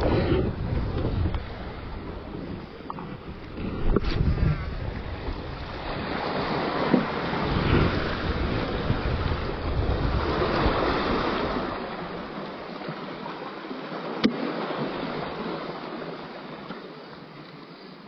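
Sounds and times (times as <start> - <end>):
wind rumbling on microphone: 0.0 - 13.0
waves washing against rocks: 0.0 - 17.1.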